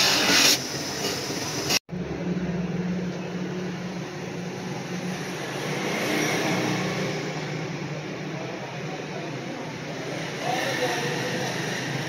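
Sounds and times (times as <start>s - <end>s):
buffing wheel polishing metal: 0.0s - 1.8s.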